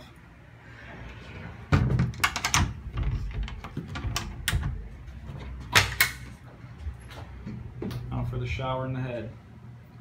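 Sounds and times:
latch clicks and knocks: 1.8 - 4.8, 5.7 - 6.3.

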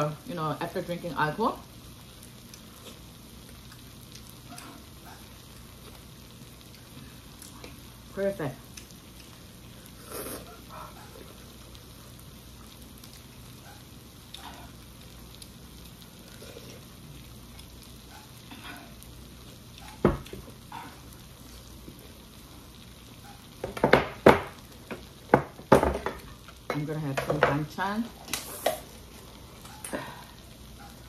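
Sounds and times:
slurping and chewing: 2.4 - 7.8, 8.7 - 11.7, 15.4 - 22.2.

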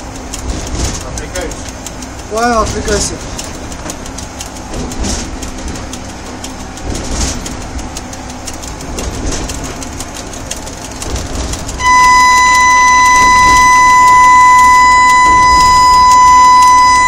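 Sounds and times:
train rumble: 0.0 - 17.0
wheels clicking over rails: 0.0 - 17.0
high-pitched electronic beep: 11.8 - 17.0.

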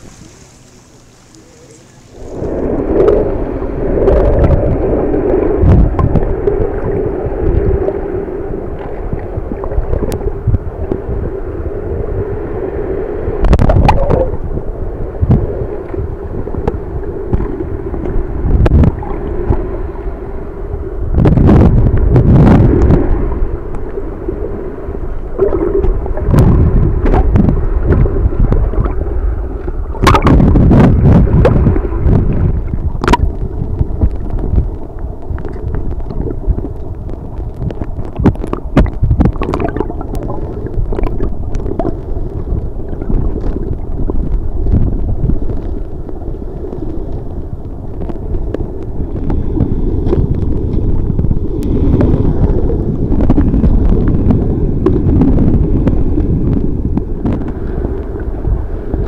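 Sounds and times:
underwater water rumble: 0.0 - 59.0
water gurgling: 0.0 - 59.0
sharp clicks and splashes: 4.1 - 8.0, 8.7 - 11.1, 25.4 - 59.0.

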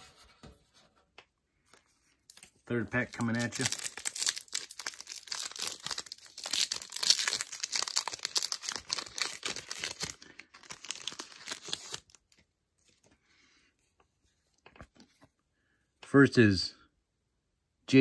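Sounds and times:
card pack wrapper crinkling: 2.3 - 12.4.

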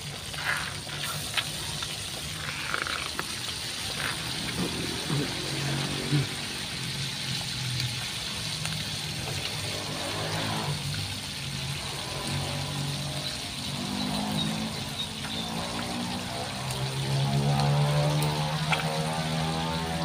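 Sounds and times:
engine droning: 0.0 - 20.0
fish sizzling in hot oil: 0.0 - 20.0.

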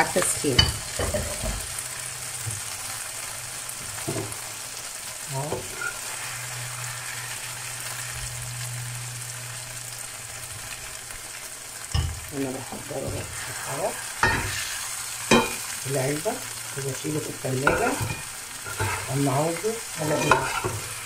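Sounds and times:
food sizzling in a frying pan: 0.0 - 21.0
metal spoon stirring food: 17.0 - 21.0.

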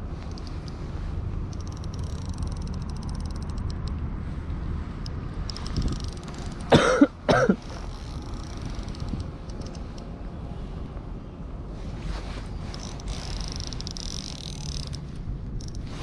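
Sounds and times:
wind rumble on microphone: 0.0 - 6.7, 7.8 - 16.0
fast fine ticking: 1.4 - 4.0, 5.0 - 6.8, 7.8 - 10.1
man coughing: 6.7 - 7.6.

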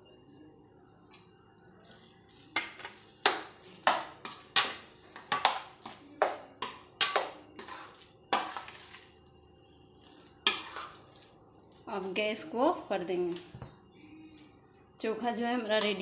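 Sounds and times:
metal spatula scraping steel pan: 2.6 - 6.0, 6.6 - 9.2, 10.0 - 11.0, 15.8 - 16.0.

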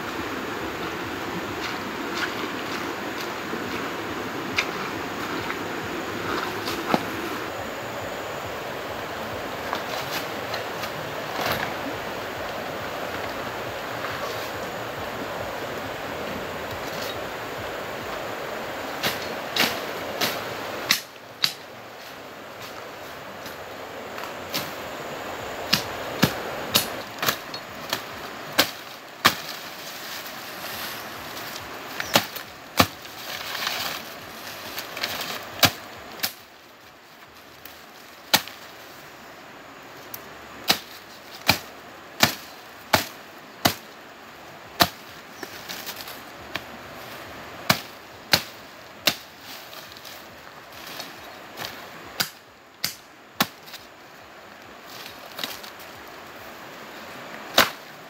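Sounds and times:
leaves rustling: 0.0 - 58.0
machete chopping brush: 9.6 - 11.8, 18.9 - 21.8, 25.6 - 36.5, 37.6 - 38.8, 40.6 - 43.9, 44.8 - 46.8, 47.6 - 53.9, 57.4 - 57.9.

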